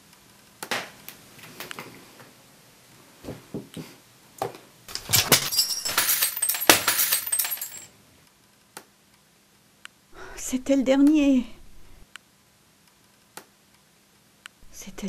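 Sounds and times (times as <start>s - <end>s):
glass shards clattering on floor: 4.9s - 7.9s
glass smashing: 4.9s - 7.9s.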